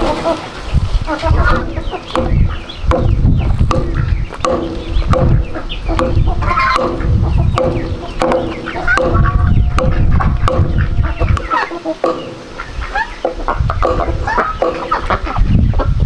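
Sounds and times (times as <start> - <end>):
chickens clucking: 0.0 - 16.0
sharp ticks: 1.6 - 12.6.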